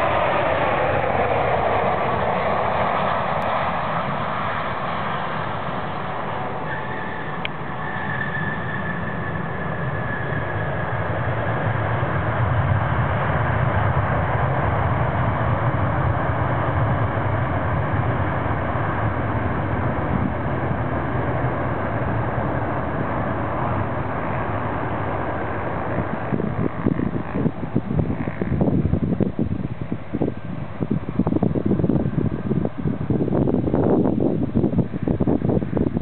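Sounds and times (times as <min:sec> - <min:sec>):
high jet engine whine: 0:00.0 - 0:36.0
jet engines roaring on runway: 0:00.0 - 0:36.0.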